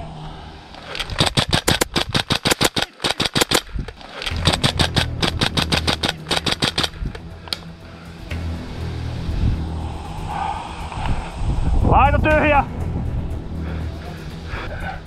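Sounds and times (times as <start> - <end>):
airsoft gun rapid shots: 1.0 - 7.0.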